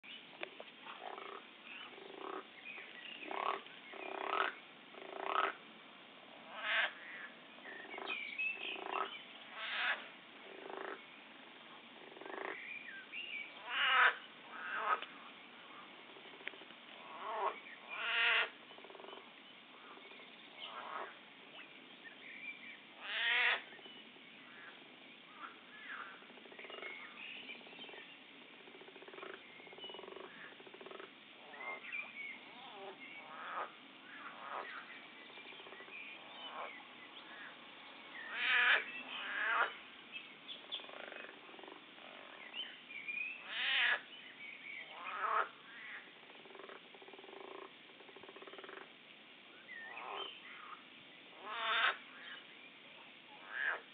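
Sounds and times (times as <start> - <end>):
chorus of faint frog calls: 0.4 - 53.9
loud pulsed frog croak: 0.8 - 2.5, 3.2 - 5.6, 6.4 - 11.1, 12.0 - 12.7, 13.6 - 15.1, 16.1 - 20.0, 20.6 - 21.2, 23.0 - 23.7, 25.3 - 27.2, 27.8 - 31.9, 32.5 - 34.9, 38.2 - 39.8, 40.6 - 42.4, 44.8 - 49.0, 49.9 - 52.0, 53.3 - 53.9.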